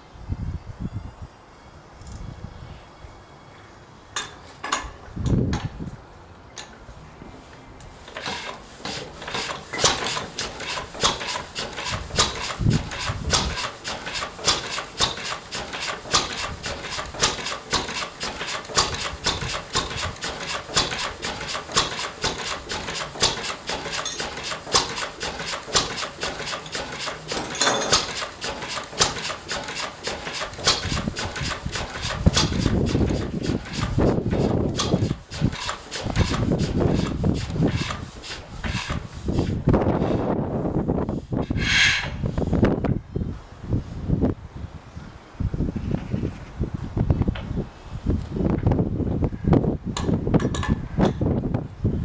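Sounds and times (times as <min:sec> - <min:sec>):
stationary engine knocking: 0:08.9 - 0:38.0.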